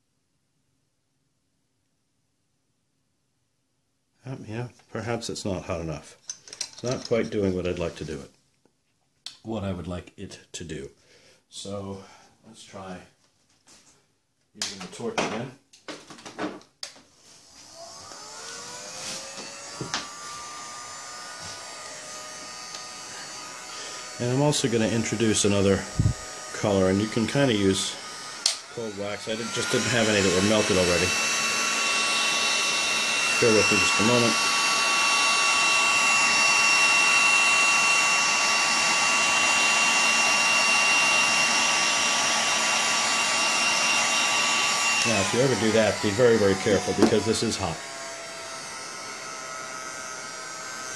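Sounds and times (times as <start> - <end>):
heating tool whining: 17.2 - 50.9.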